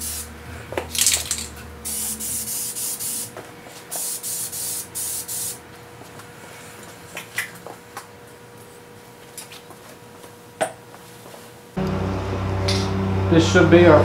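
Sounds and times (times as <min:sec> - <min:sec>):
spray paint can hissing: 0:00.0 - 0:00.3, 0:00.9 - 0:03.3, 0:03.9 - 0:05.6.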